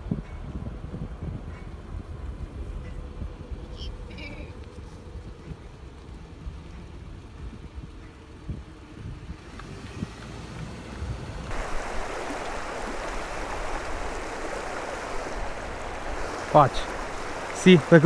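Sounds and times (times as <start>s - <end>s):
slow-moving car rumble: 0.0s - 18.0s
river flowing over rocks: 11.5s - 18.0s.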